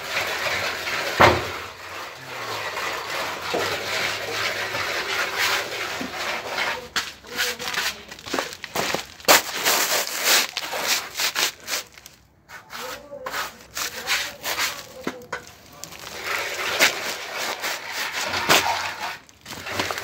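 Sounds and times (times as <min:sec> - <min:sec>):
plastering tools scraping render: 0:00.0 - 0:20.0
sharp knock: 0:01.2 - 0:01.6.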